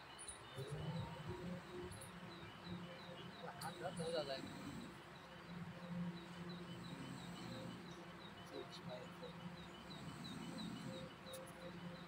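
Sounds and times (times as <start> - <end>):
steady low hum: 0.3 - 12.0.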